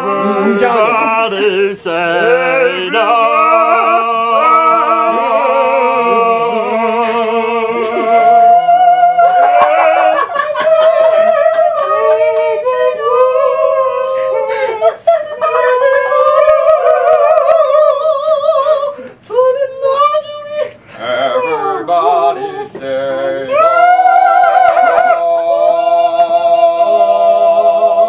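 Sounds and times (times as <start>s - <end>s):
young men singing together: 0.0s - 19.4s, 20.9s - 28.0s.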